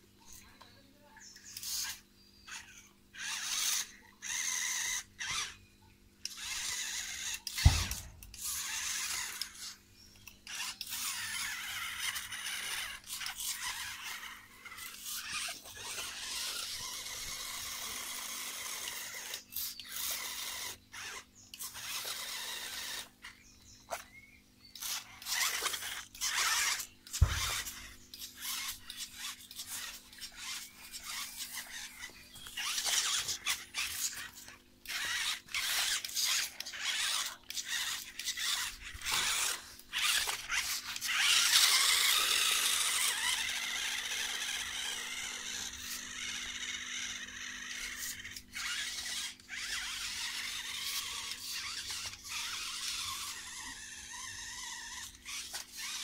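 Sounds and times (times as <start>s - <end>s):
electric motor and gears whining: 1.2s - 56.0s
low thumps: 7.6s - 8.4s.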